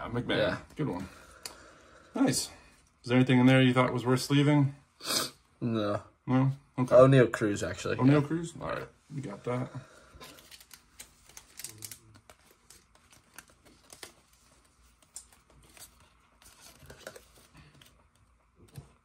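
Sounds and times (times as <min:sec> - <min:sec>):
cards clicking and sliding: 0:10.2 - 0:19.0.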